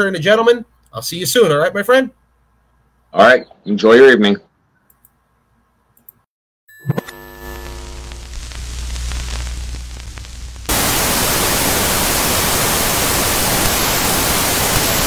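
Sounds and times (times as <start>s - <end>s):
low hum: 6.8s - 13.1s
television static hiss: 7.4s - 15.0s.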